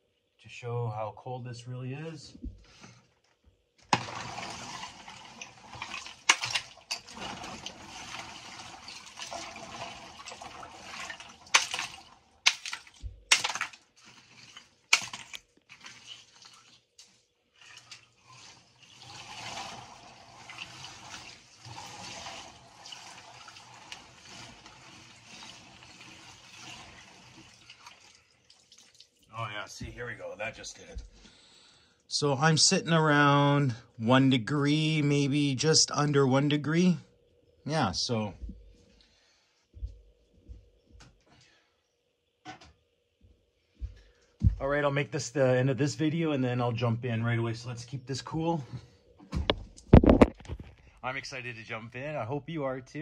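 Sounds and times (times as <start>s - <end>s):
ice chunks knocking together: 3.8s - 9.5s, 10.1s - 16.7s
ice water sloshing: 3.8s - 29.3s.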